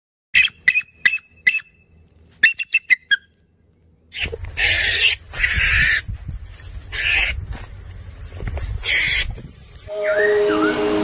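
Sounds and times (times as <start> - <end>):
eagle piping calls: 0.4 - 1.8, 2.4 - 3.4, 4.1 - 6.1, 6.9 - 7.4, 8.8 - 11.0.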